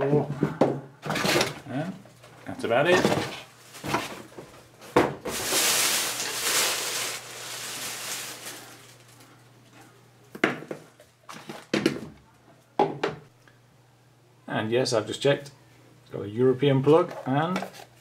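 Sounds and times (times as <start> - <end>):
packaging rustling and scraping: 2.9 - 4.6, 5.2 - 9.3.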